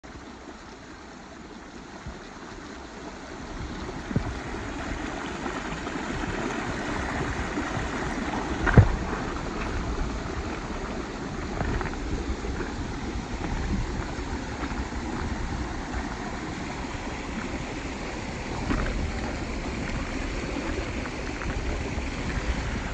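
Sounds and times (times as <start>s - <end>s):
stream rushing over stones: 0.0s - 22.9s.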